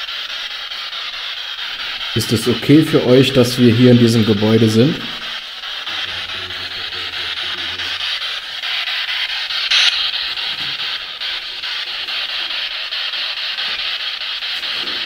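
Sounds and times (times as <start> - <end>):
radio static pulses: 0.0 - 15.0
snatches of broadcast voice: 2.1 - 8.3, 9.7 - 10.9.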